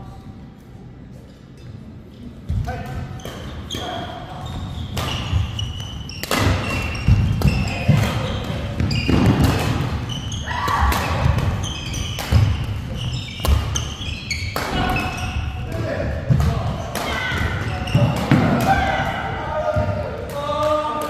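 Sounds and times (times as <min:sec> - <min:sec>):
shoes squeaking on court floor: 0:01.4 - 0:15.6, 0:16.8 - 0:18.4
rackets hitting shuttlecock: 0:04.9 - 0:15.1.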